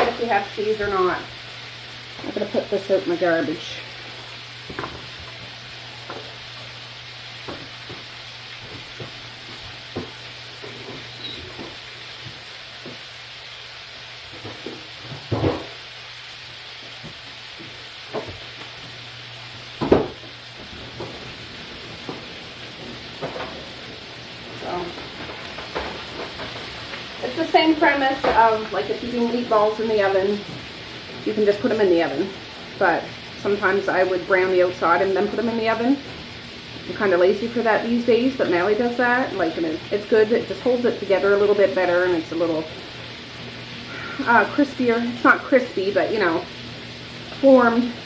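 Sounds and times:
patties sizzling in frying pan: 0.0s - 48.0s.

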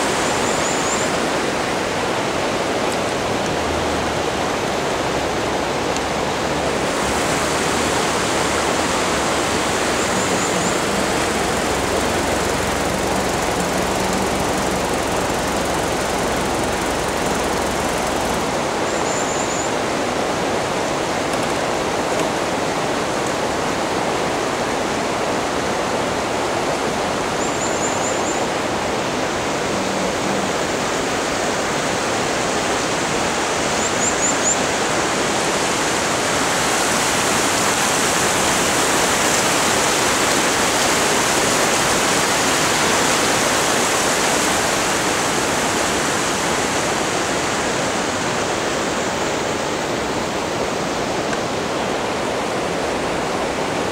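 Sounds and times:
steady rushing noise: 0.0s - 19.0s.

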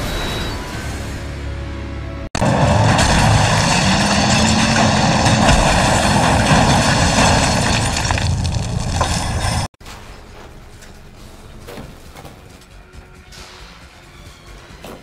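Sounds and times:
car engine: 2.3s - 9.7s.

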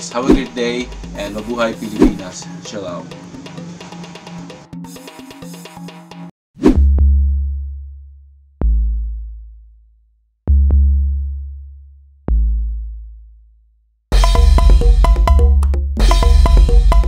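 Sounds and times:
synthesized bass drum booms: 6.8s - 7.8s, 14.1s - 17.0s.

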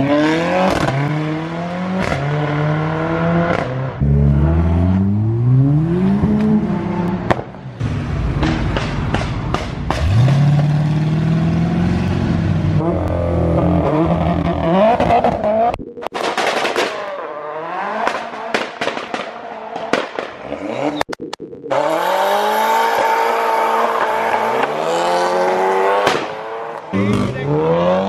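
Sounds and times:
car engines revving: 0.0s - 15.8s, 16.9s - 21.1s, 21.7s - 28.0s
exhaust pops and crackles: 8.4s - 10.1s, 14.4s - 17.0s, 18.0s - 21.6s.

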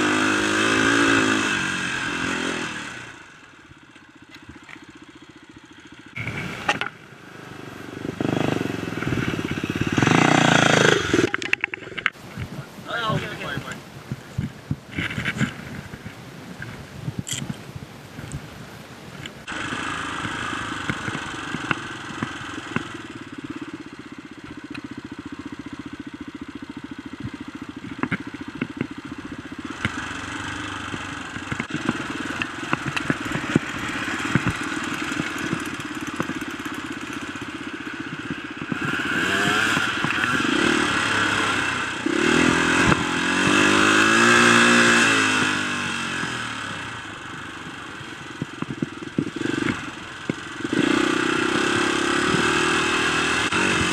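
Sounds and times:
dirt bike engine revving: 0.0s - 12.2s, 19.4s - 53.9s
knocks and rattles: 9.1s - 12.2s, 30.9s - 37.5s.

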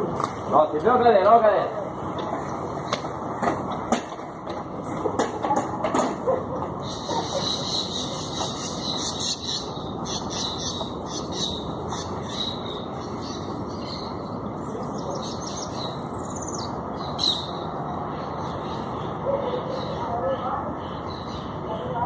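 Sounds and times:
steady background noise: 0.0s - 22.0s
birds chirping and calling: 6.8s - 22.0s.

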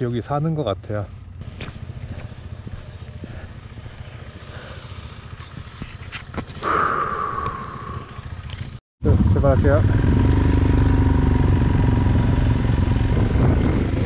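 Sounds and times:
motorcycle engine idling: 0.8s - 8.8s.

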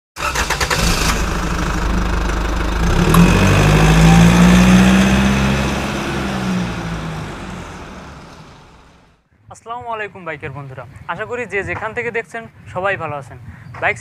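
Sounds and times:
motorcycle engine: 0.2s - 9.1s.

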